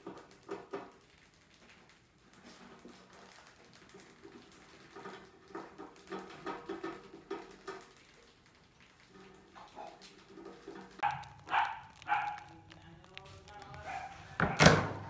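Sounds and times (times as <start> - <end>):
rat claws scratching on wire: 10.4 - 14.5.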